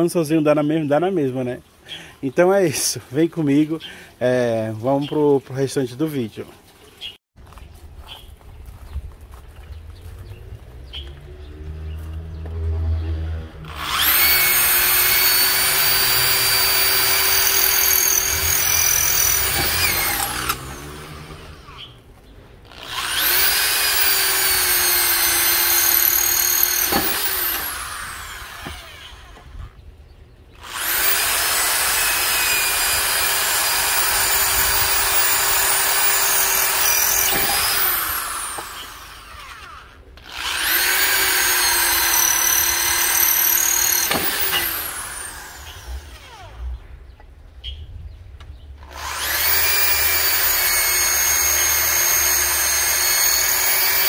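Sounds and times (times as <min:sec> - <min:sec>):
electric drill boring through clay tile: 0:13.7 - 0:21.9, 0:22.7 - 0:29.6, 0:30.6 - 0:46.6, 0:48.8 - 0:54.0.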